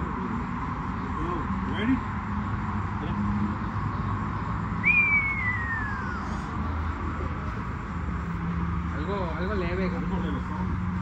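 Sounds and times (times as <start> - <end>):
whistle-like sliding note: 4.8 - 6.3.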